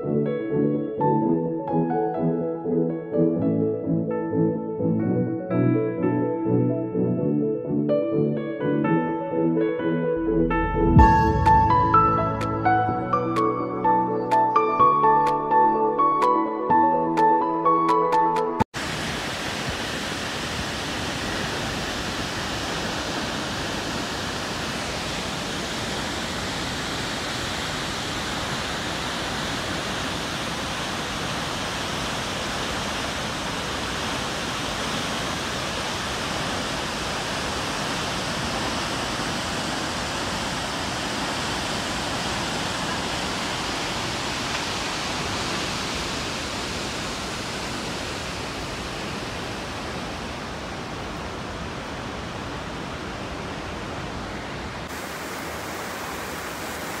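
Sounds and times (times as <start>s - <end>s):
waterfall rushing: 18.8s - 57.0s.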